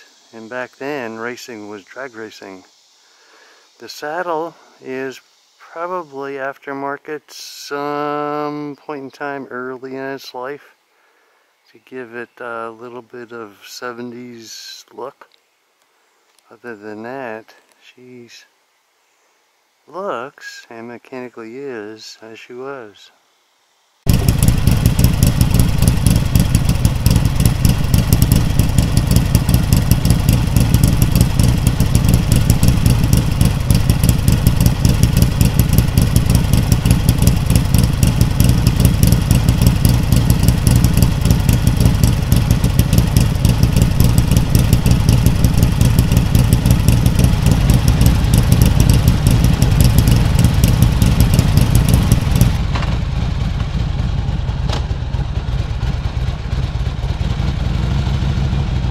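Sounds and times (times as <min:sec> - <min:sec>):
motorcycle engine idling: 0:24.1 - 0:58.9.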